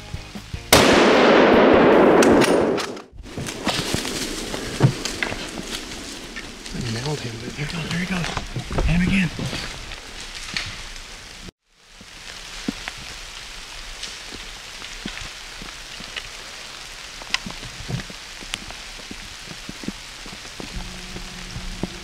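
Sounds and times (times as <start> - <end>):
steady rain: 3.4 - 22.0
raindrops ticking: 4.7 - 22.0.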